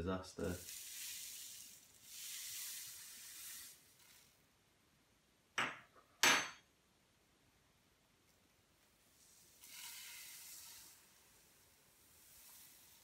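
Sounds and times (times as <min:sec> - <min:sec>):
sugar sliding into a bottle: 0:00.4 - 0:04.4, 0:09.1 - 0:13.0.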